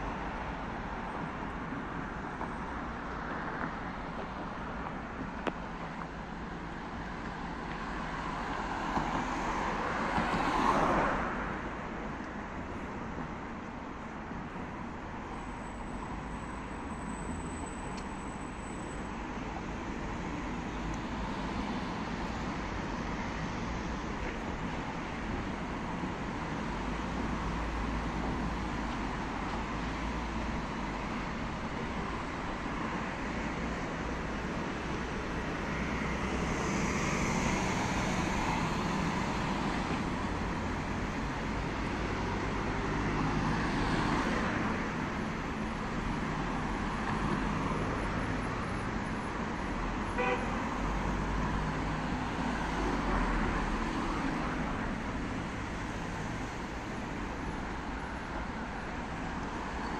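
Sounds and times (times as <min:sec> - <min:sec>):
cars and vans passing: 0:00.0 - 0:59.9
car horn toot: 0:50.2 - 0:50.6.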